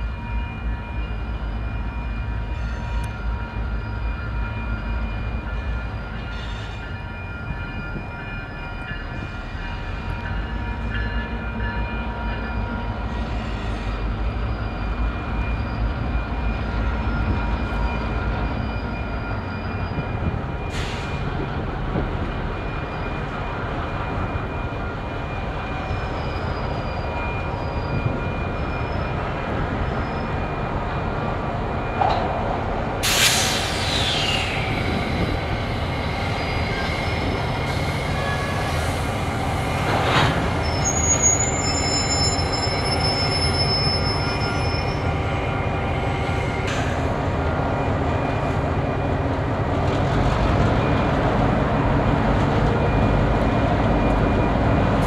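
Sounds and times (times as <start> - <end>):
crossing warning bell ringing: 0.0 - 32.7, 34.9 - 49.9
diesel locomotives rolling: 0.0 - 55.0.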